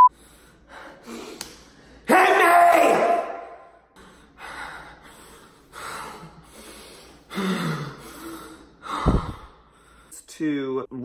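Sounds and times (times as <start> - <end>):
man gasping and breathing hard: 4.0 - 10.2.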